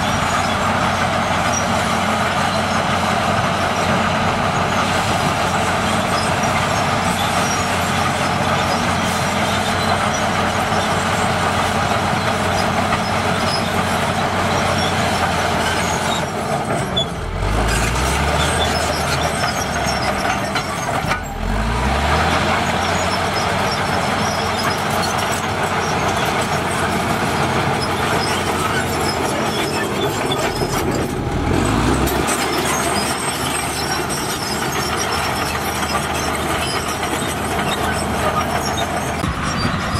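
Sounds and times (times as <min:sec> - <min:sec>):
bulldozer diesel engine: 0:00.0 - 0:39.9
steel tracks clattering: 0:22.2 - 0:39.9.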